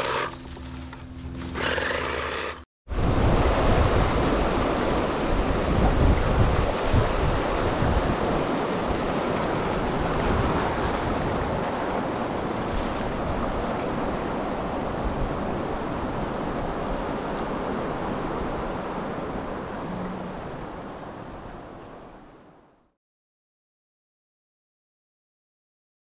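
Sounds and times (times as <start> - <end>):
wind buffeting microphone: 2.9 - 21.7.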